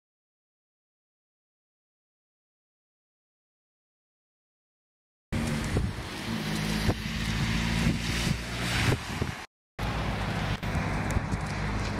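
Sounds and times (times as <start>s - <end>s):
vehicle engine running: 5.4s - 8.5s, 9.8s - 11.9s
wind on microphone: 5.4s - 9.5s, 10.5s - 11.9s.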